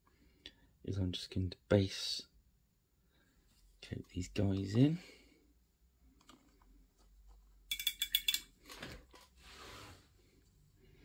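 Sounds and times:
soft rustle: 8.7s - 11.0s.

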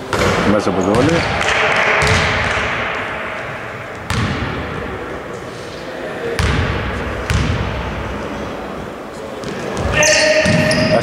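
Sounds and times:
basketball bouncing on wooden floor: 2.0s - 2.7s, 4.0s - 4.6s, 7.3s - 7.6s.

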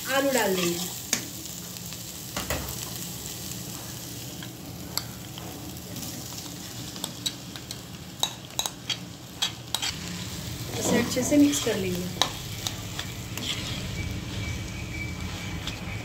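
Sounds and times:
oil sizzling: 0.0s - 16.0s
spatula scraping a plate: 9.4s - 10.0s, 10.8s - 16.0s.

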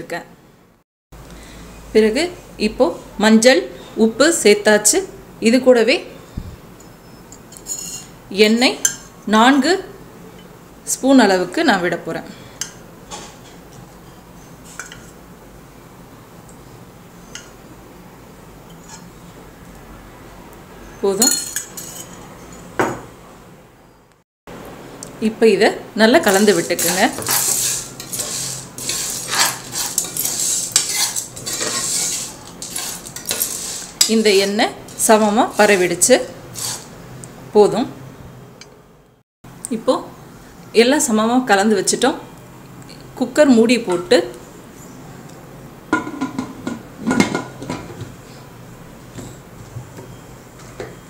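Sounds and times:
metal spoon scraping pot: 6.8s - 8.2s, 18.7s - 19.1s, 26.2s - 37.0s
corn kernels rattling: 26.3s - 34.5s.

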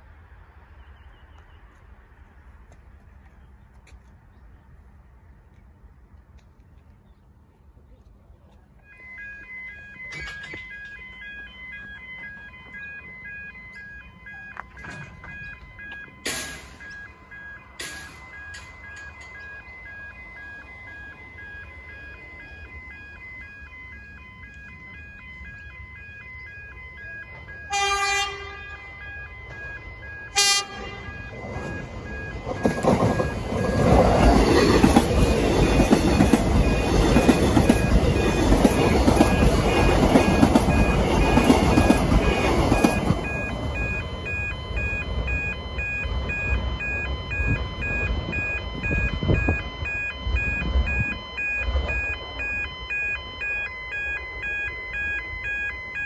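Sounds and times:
level-crossing bells dinging: 8.8s - 56.0s
train wheels rushing on rail: 10.0s - 24.7s, 27.0s - 53.6s
train horn: 27.7s - 29.0s, 30.3s - 31.2s.

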